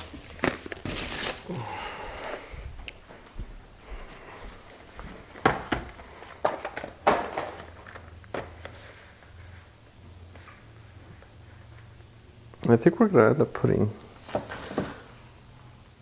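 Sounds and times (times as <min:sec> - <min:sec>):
packaging rustling: 0:00.0 - 0:01.5, 0:14.1 - 0:15.3.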